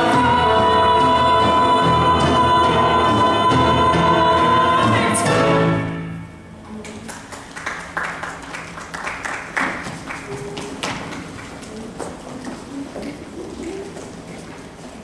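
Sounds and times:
musical accompaniment: 0:00.0 - 0:06.8
people clapping: 0:06.7 - 0:14.2.

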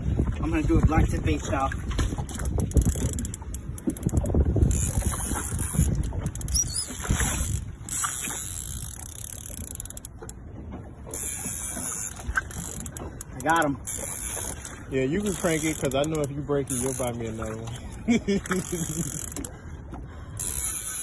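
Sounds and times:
water noise: 0:00.0 - 0:21.0
wind: 0:00.0 - 0:21.0
fishing reel clicking: 0:02.4 - 0:10.3, 0:11.1 - 0:17.2, 0:18.5 - 0:19.5, 0:20.4 - 0:21.0.

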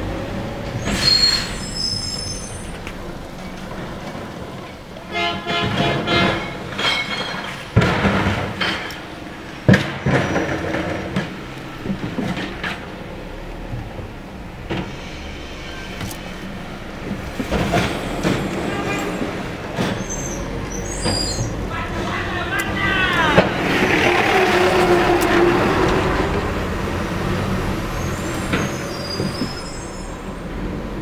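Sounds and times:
carts and recyclables clattering: 0:00.0 - 0:31.0
truck engine rumble: 0:00.0 - 0:31.0
carts banging on hopper: 0:03.3 - 0:14.0, 0:16.5 - 0:27.6
hydraulics whine: 0:05.8 - 0:31.0.

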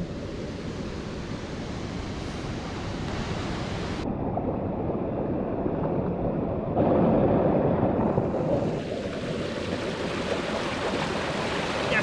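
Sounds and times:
water rushing over rapids: 0:06.8 - 0:12.0.

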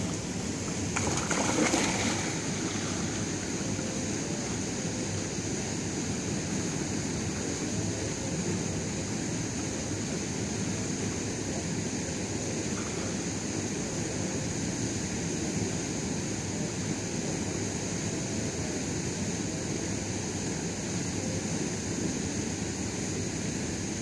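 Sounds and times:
feet splashing in shallow water: 0:00.0 - 0:04.0
constant high hiss: 0:00.0 - 0:24.0.

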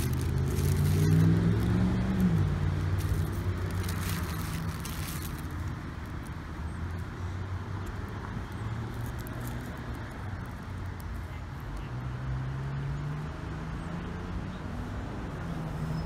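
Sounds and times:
passing vehicle engine: 0:00.0 - 0:11.0.

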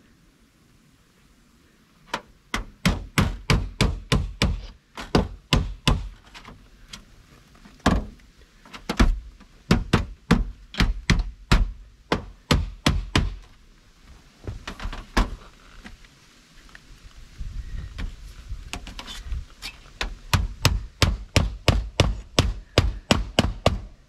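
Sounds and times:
hammer striking nails: 0:02.5 - 0:06.2, 0:08.9 - 0:13.4, 0:20.3 - 0:24.0.

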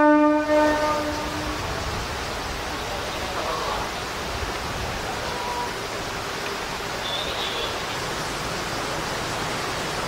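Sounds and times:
wind buffeting microphone: 0:00.6 - 0:06.8.

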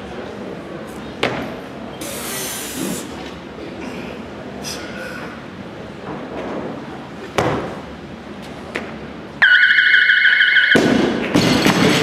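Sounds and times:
barbell crashing onto platform: 0:10.8 - 0:12.0.

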